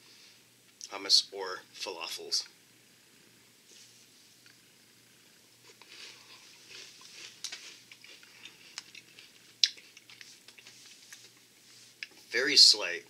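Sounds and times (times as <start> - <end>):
chewing crunchy snack: 5.6 - 12.3.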